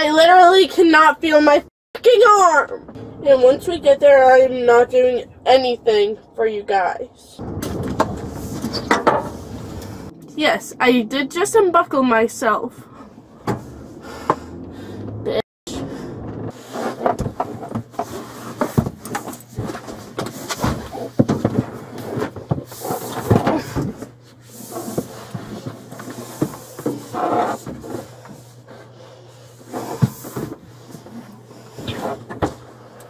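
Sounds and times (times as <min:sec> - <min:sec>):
car low hum: 0:07.2 - 0:16.6.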